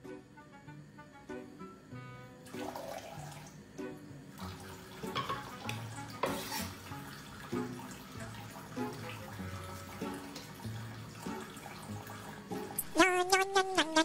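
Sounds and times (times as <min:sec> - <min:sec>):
background music: 0:00.0 - 0:14.0
tap water running into sink: 0:02.5 - 0:03.6, 0:04.3 - 0:12.8.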